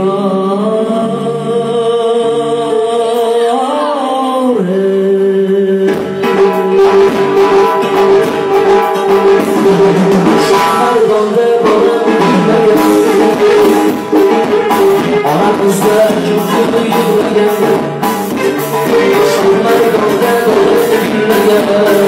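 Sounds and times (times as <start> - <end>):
drum kit steady beat: 5.9 - 22.0.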